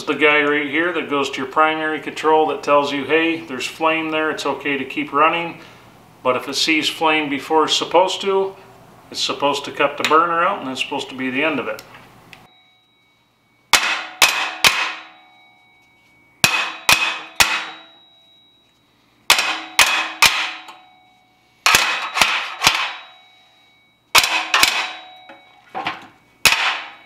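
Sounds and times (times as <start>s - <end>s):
metal ringing: 12.5s - 27.0s
hammer blows on steel housing: 13.7s - 15.2s, 16.4s - 18.0s, 19.3s - 20.9s.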